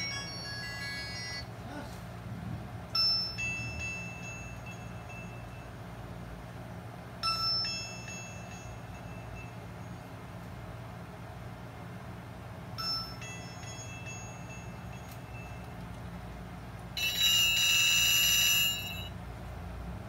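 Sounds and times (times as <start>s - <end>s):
phone ringtone bell-like notes: 0.0s - 1.5s, 3.0s - 5.7s, 7.2s - 10.0s, 12.8s - 15.7s, 17.0s - 19.2s
steady low hum: 0.0s - 20.0s
single chime tones: 17.0s - 19.1s.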